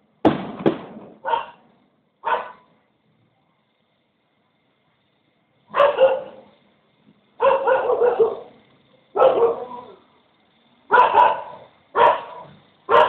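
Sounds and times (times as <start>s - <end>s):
dog barking: 1.2s - 1.6s, 2.2s - 2.7s, 5.7s - 6.5s, 7.4s - 8.5s, 9.2s - 10.0s, 10.9s - 13.0s.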